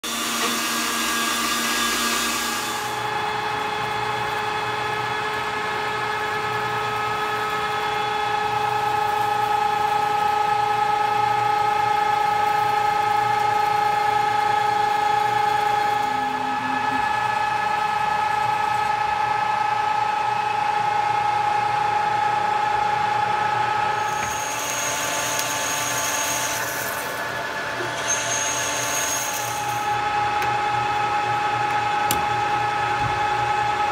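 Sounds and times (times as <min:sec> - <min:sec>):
lathe tool cutting hiss: 0:00.0 - 0:03.0, 0:24.0 - 0:30.0
power tool cutting metal: 0:00.0 - 0:05.0, 0:13.0 - 0:18.6, 0:24.0 - 0:30.1
metal lathe whining: 0:00.0 - 0:33.9.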